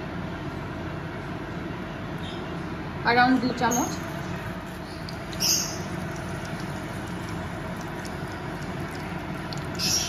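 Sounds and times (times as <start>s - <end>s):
gas burner rumble: 3.0s - 10.0s
sharp sizzle: 3.8s - 10.0s
ghee hissing in a pan: 3.9s - 10.0s.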